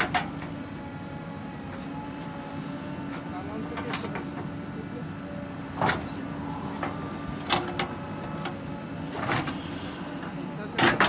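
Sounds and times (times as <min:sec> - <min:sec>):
diesel engine running under load: 0:00.0 - 0:11.0
bucket and arm clanking: 0:05.8 - 0:11.0.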